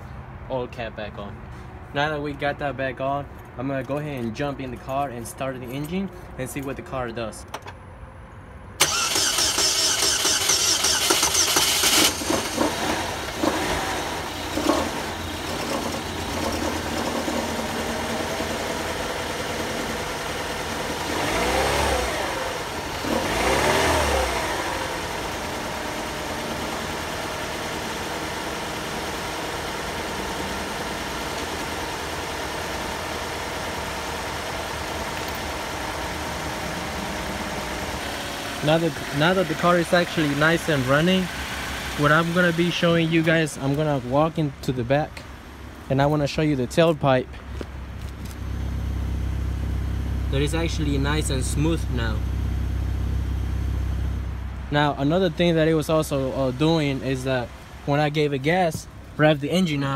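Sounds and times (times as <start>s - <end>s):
car starter cranking: 8.8s - 18.6s
car engine revving and idling: 8.8s - 59.9s.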